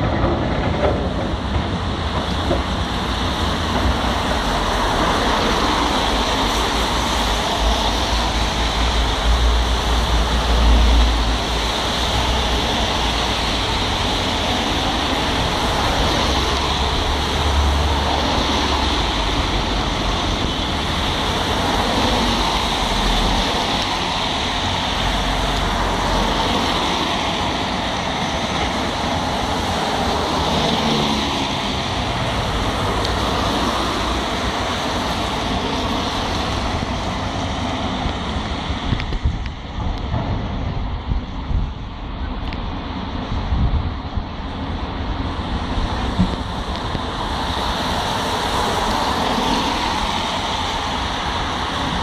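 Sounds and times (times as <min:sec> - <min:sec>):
excavator working: 0:00.0 - 0:52.0
street traffic roar: 0:00.0 - 0:52.0
wind buffeting microphone: 0:31.6 - 0:52.0.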